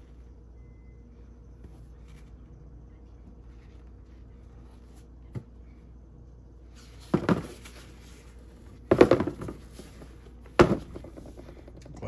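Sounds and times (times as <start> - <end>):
sneakers knocking on shoebox: 7.1 - 7.7, 8.9 - 9.8, 10.6 - 11.4.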